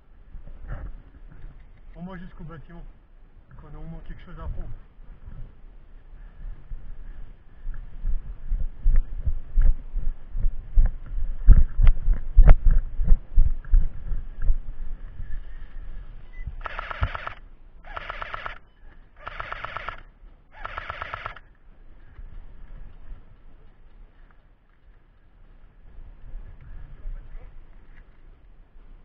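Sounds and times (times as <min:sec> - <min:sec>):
running through dry leaves: 0:12.0 - 0:29.0
airsoft rifle bursts: 0:16.6 - 0:21.5.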